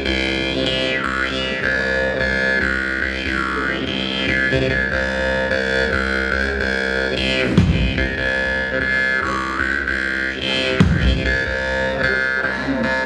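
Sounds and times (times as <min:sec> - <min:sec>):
jaw harp twanging: 0:07.4 - 0:13.0.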